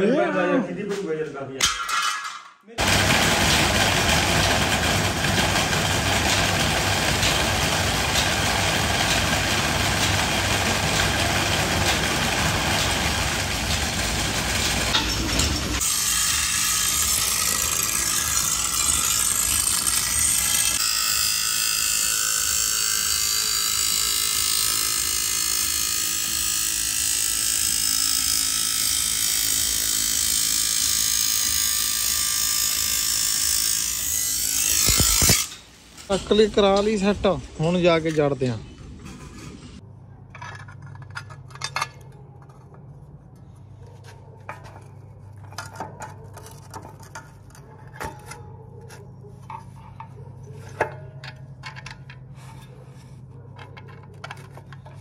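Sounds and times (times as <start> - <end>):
drill press boring into wood: 2.8 - 35.5
grinding wheel sharpening steel: 5.2 - 35.7.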